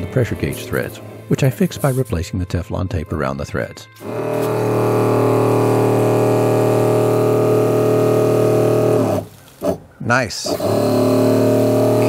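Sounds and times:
electric pump running: 0.0s - 2.0s, 4.0s - 9.8s, 10.4s - 12.0s.

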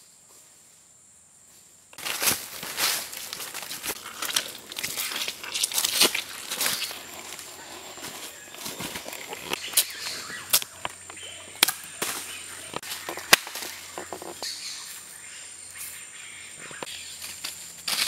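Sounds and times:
high insect whine: 0.0s - 18.0s
sharp snaps and cracks: 1.9s - 14.5s.

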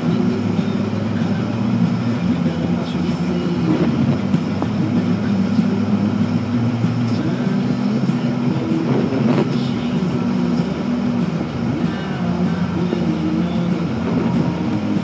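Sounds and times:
car engine hum: 0.0s - 15.0s.

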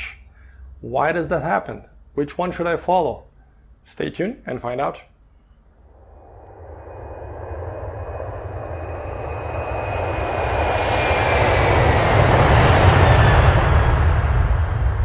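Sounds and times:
thin whine: 5.3s - 15.0s
low rumble: 5.4s - 15.0s
jet engine rush: 5.8s - 15.0s.

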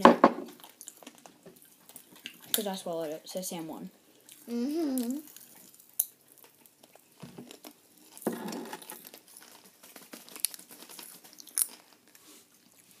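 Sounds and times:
popping candy crackling: 0.0s - 3.4s, 4.4s - 12.2s
chewing crunches: 0.6s - 2.6s, 5.2s - 13.0s.

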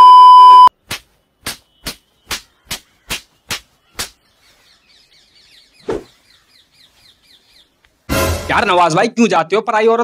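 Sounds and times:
test-card beep tone: 0.0s - 0.7s.

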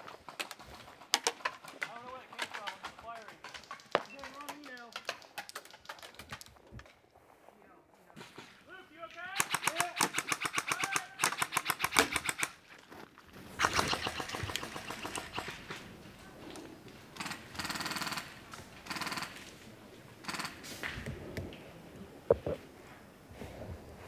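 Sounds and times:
airsoft guns firing full-auto bursts: 9.3s - 12.6s, 13.5s - 15.8s, 17.2s - 19.5s, 20.2s - 20.8s.

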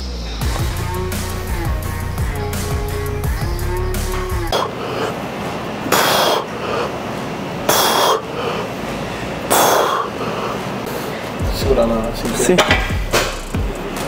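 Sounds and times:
person breathing hard: 4.5s - 5.3s, 7.7s - 11.3s.

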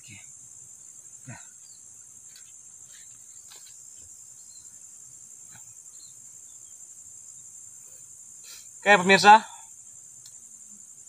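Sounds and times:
crickets trilling: 0.0s - 11.0s
faint rustles: 1.2s - 6.2s.

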